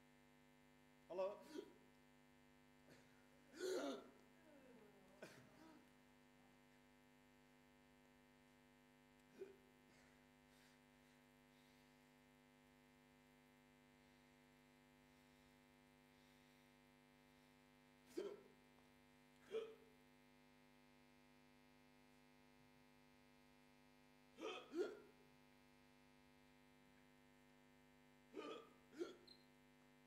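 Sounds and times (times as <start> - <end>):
low electrical hum: 0.0 - 30.0
person hiccuping: 3.5 - 4.1, 18.2 - 18.4, 19.5 - 19.8, 24.4 - 25.1, 28.4 - 29.4.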